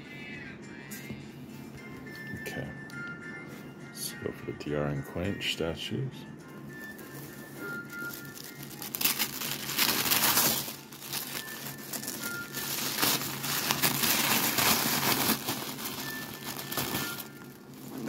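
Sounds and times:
tissue paper crinkling and tearing: 6.8 - 18.0.

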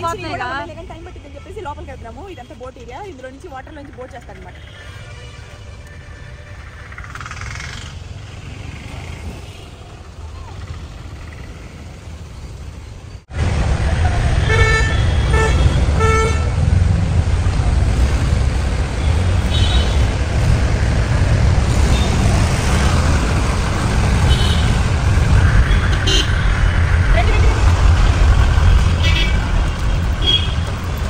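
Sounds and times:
road traffic rumble: 0.0 - 31.0
vehicle horn tooting: 14.4 - 16.6, 30.2 - 30.7.

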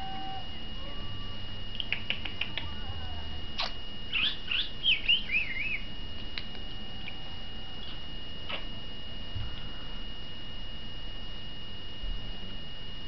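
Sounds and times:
budgerigar chirping and warbling: 3.6 - 5.9, 7.8 - 8.0.

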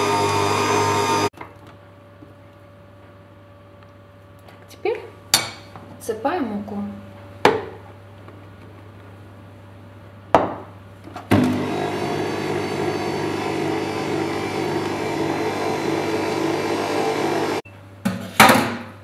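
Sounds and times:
stand mixer running: 0.0 - 1.3, 11.4 - 17.6.

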